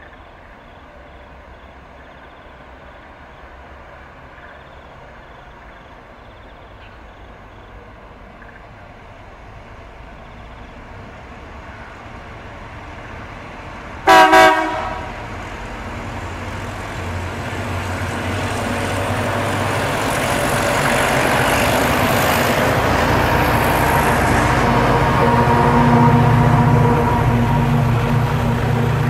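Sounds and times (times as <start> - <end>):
diesel locomotive engines rumbling: 0.0 - 29.0
locomotive horn toots: 14.0 - 15.3.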